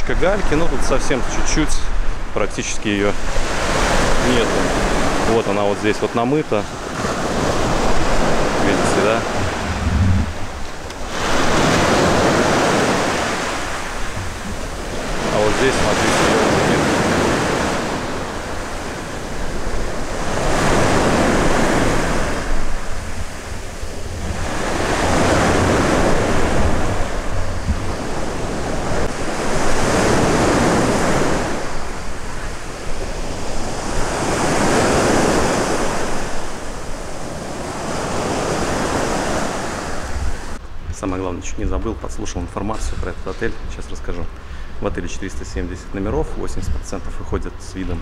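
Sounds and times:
small waves breaking on beach: 0.0 - 40.6
wind buffeting microphone: 6.6 - 41.0.

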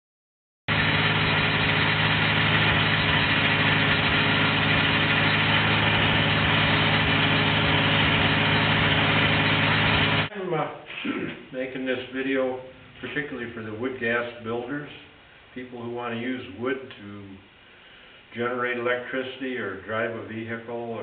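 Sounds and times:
wood chunker machine droning: 0.7 - 10.3.

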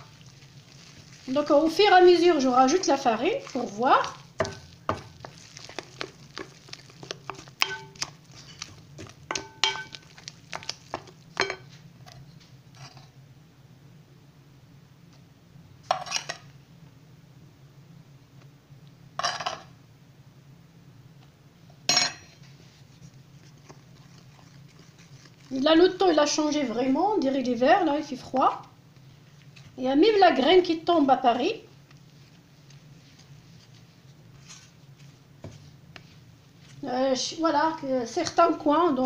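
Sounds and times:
dough squelching in bowl: 0.0 - 12.2, 22.4 - 39.0.

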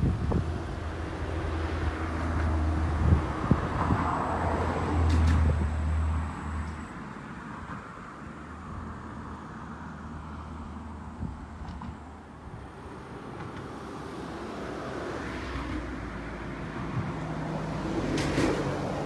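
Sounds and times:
wind buffeting microphone: 0.0 - 6.0.

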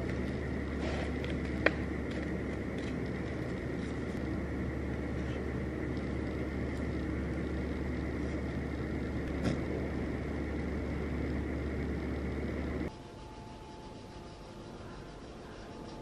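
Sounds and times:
room noise hum and rumble: 0.0 - 16.0.

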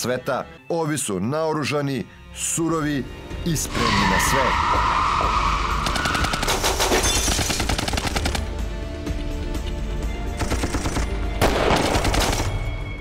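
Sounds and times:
rapid gunfire bursts: 5.8 - 8.6, 10.4 - 12.6.

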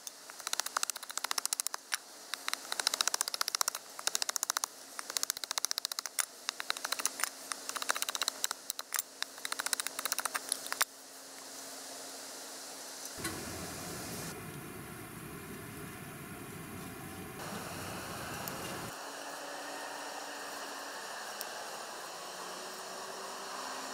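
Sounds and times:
faint steady hum: 3.6 - 23.9.

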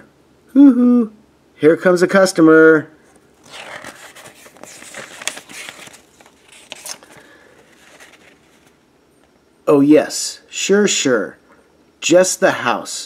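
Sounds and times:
book pages rustling: 3.1 - 8.8.

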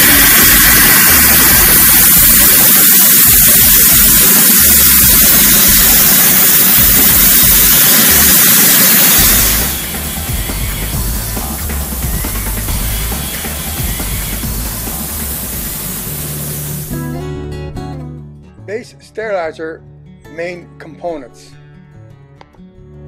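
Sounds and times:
loud steady steam hiss: 0.0 - 17.0.

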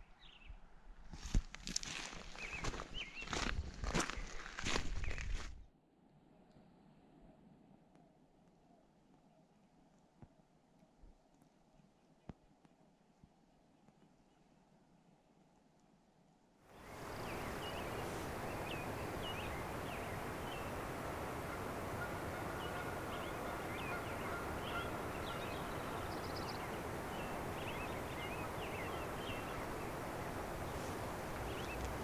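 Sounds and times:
steady rushing noise: 16.7 - 32.0
bird chirps: 16.8 - 30.0.

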